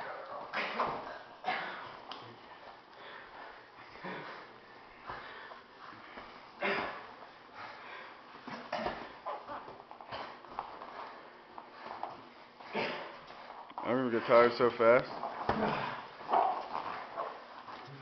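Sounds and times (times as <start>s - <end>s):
hard breathing: 0.6s - 14.5s.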